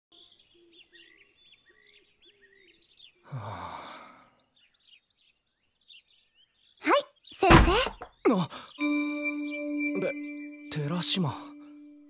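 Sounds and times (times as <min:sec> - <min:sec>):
small birds chirping: 0:00.1 - 0:12.0
man sighing: 0:03.3 - 0:04.3.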